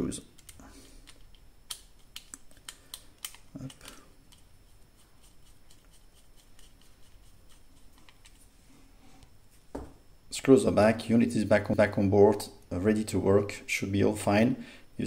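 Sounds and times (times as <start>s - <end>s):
soft knock: 9.7s - 10.0s.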